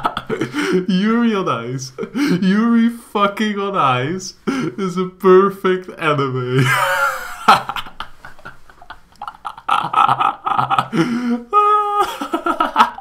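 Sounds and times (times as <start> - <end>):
person laughing hard: 0.0 - 0.9, 6.6 - 13.0.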